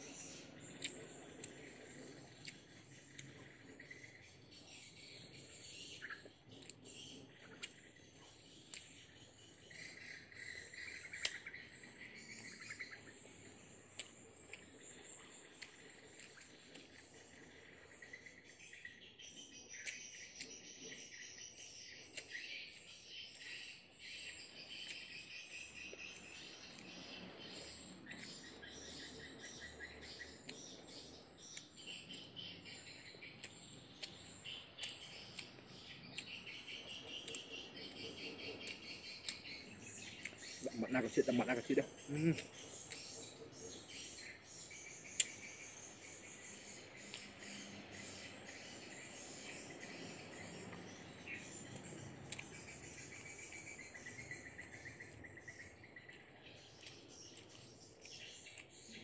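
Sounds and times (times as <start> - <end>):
person chewing food: 0.0 - 18.8, 19.7 - 59.0
birds chirping: 0.0 - 59.0
insects trilling: 0.0 - 59.0.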